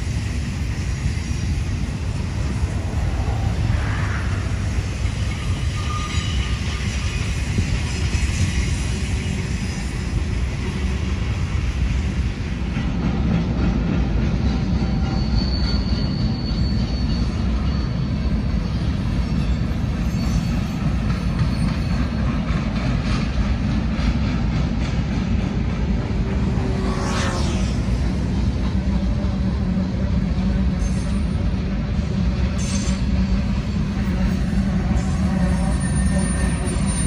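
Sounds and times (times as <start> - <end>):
high wheel squeal: 0.0 - 11.7, 14.4 - 22.5, 30.4 - 31.6, 32.4 - 37.0
train wheels rumbling on rails: 0.0 - 37.0.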